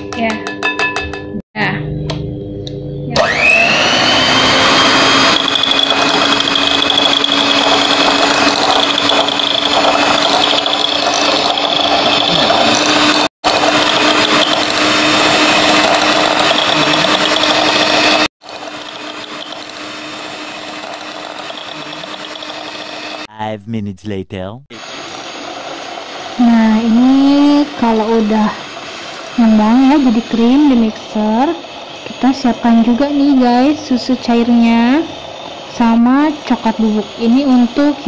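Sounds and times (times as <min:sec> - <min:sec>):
electric hand mixer whining: 0:03.2 - 0:23.3, 0:24.9 - 0:38.0.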